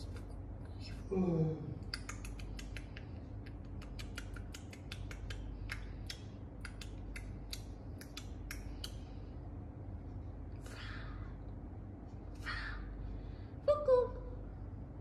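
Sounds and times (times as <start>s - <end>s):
sharp irregular clicks: 1.9s - 9.1s.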